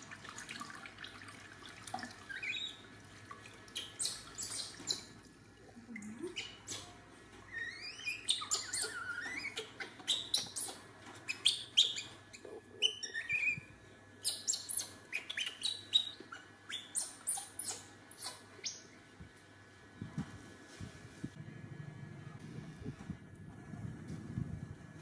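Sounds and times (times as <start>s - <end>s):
baby monkey squeaking: 3.8s - 5.1s, 6.3s - 18.8s.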